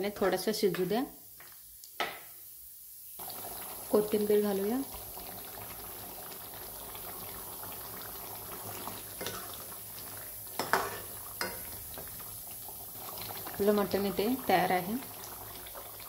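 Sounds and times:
curry bubbling in a pot: 3.2s - 16.0s.

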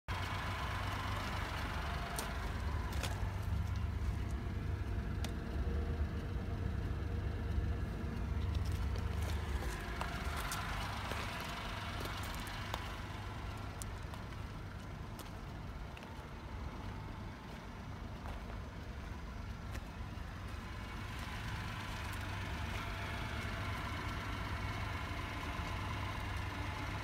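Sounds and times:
steady low rumble: 0.1s - 26.7s
footsteps crunching on gravel: 1.6s - 4.5s, 8.4s - 23.8s.

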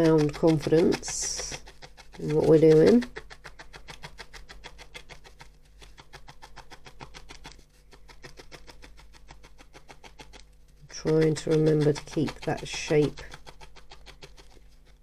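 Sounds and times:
felting needle poking wool: 0.0s - 15.0s.

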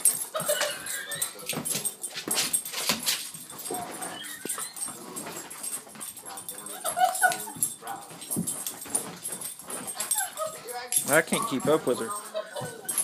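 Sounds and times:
dog paws knocking and scuffing: 0.0s - 13.0s
dog whining and whimpering: 3.6s - 5.3s.

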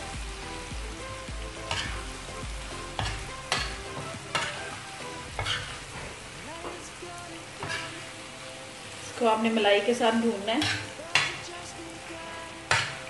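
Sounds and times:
chicken sizzling in a pan: 0.0s - 13.0s
steel spoon scraping a pan: 1.6s - 2.1s, 2.9s - 4.8s, 5.4s - 6.2s, 7.6s - 8.0s, 10.5s - 11.4s.

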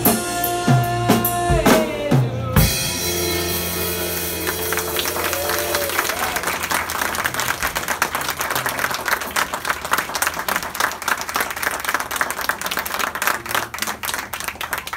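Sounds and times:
audience applauding: 3.4s - 14.9s.

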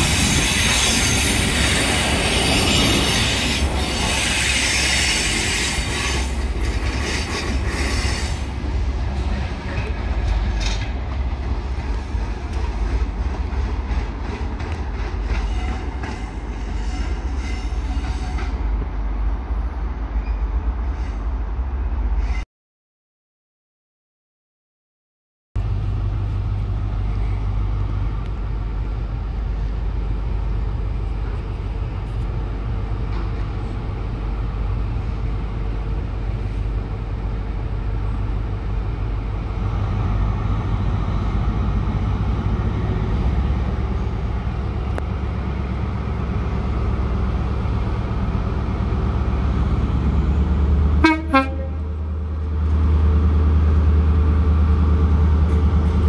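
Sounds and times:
diesel locomotive engine drone: 0.0s - 22.4s, 25.6s - 56.0s
train horn toot: 16.6s - 18.6s, 51.0s - 51.9s.

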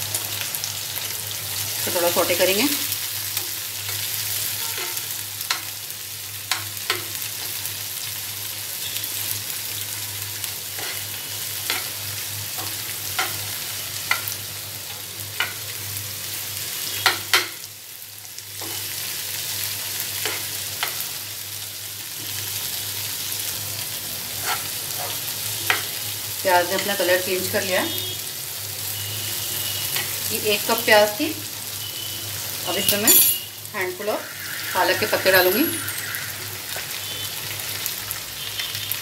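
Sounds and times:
onions sizzling in oil: 0.0s - 39.0s
spoon scraping a pan: 3.4s - 5.7s, 10.8s - 14.4s, 24.4s - 26.0s.

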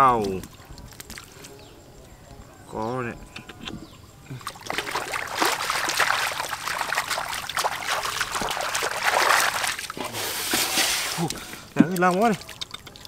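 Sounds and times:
hands splashing in muddy water: 4.4s - 13.0s.

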